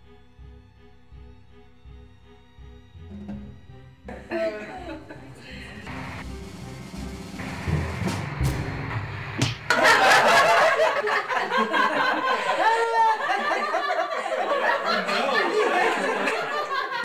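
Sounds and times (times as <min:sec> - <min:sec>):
people laughing: 0:04.1 - 0:06.2, 0:09.7 - 0:17.0.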